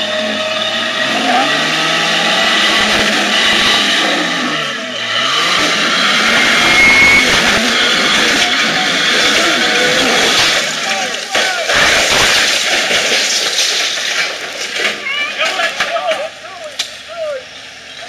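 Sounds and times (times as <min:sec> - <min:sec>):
car engine revving under load: 0:00.0 - 0:12.9.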